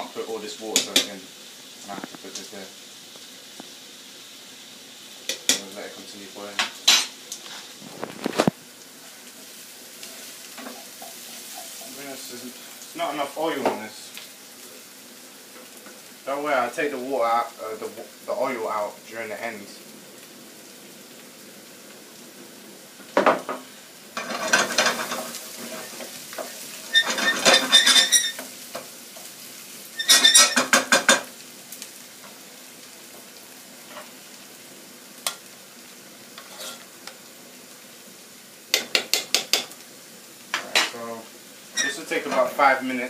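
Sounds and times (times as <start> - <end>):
onions sizzling in a frying pan: 0.0 - 43.0
wooden spoon scraping a pan: 6.9 - 8.6, 9.4 - 12.6, 24.2 - 29.3, 29.9 - 31.3, 36.4 - 36.9, 41.8 - 42.5.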